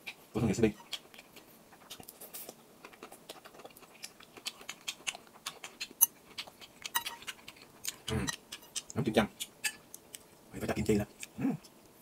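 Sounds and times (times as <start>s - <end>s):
chewing mouth smacks: 0.8s - 10.3s.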